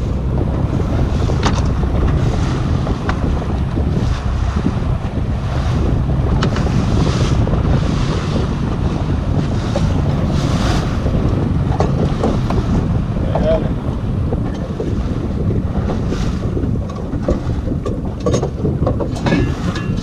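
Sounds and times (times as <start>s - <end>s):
water washing: 0.0s - 20.0s
wind buffeting microphone: 0.0s - 20.0s.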